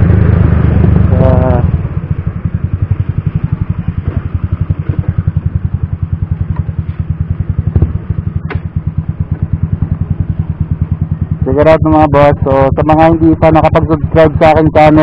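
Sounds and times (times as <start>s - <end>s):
motor scooter engine putter: 6.4s - 7.1s, 7.7s - 8.7s.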